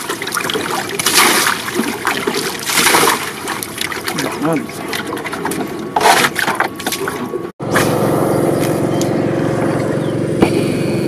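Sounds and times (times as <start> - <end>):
fish thrashing in water: 0.0 - 8.8
water splashing and sloshing: 0.0 - 10.7
steady engine-like drone: 3.4 - 11.0.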